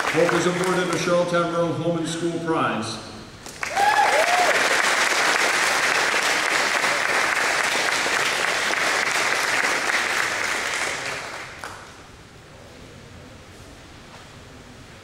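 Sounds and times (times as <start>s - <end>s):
audience applauding: 0.0s - 1.0s, 3.4s - 11.9s.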